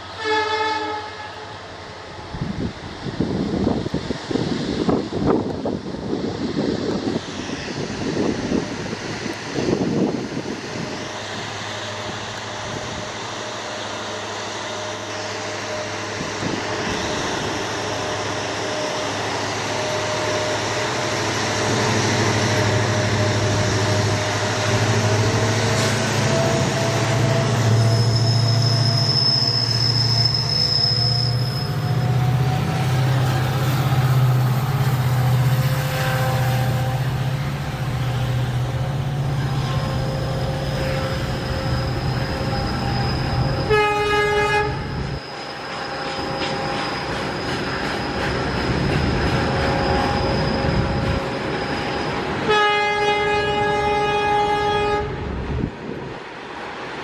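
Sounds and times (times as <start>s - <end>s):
diesel locomotives working hard: 0.0s - 57.0s
short horn blast: 0.2s - 1.5s, 43.6s - 44.9s, 52.5s - 55.2s
rolling train wagons: 3.4s - 57.0s
high steady squeal: 10.6s - 52.5s.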